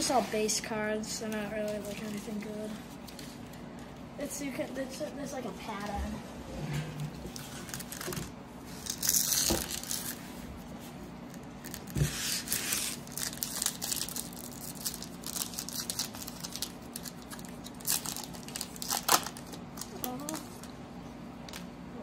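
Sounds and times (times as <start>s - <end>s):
foil wrapper tearing and crinkling: 7.4s - 10.2s, 11.3s - 20.7s.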